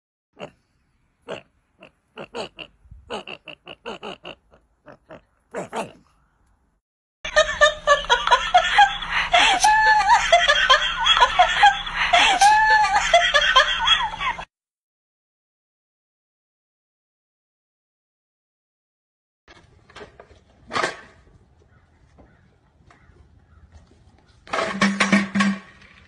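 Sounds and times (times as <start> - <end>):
people laughing and squealing: 7.3 - 14.5.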